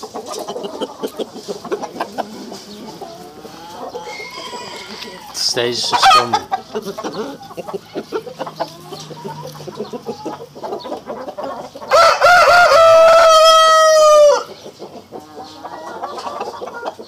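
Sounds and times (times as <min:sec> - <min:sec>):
hens clucking softly: 0:00.0 - 0:17.0
rooster crowing: 0:03.8 - 0:06.3, 0:11.9 - 0:14.5.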